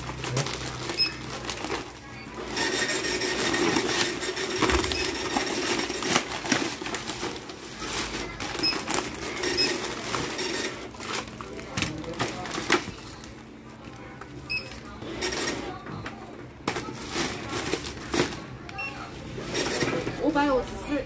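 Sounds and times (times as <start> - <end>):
plastic bag rustling: 0.0 - 13.4
goods being handled: 0.0 - 20.6
barcode scanner beeps: 4.5 - 5.6.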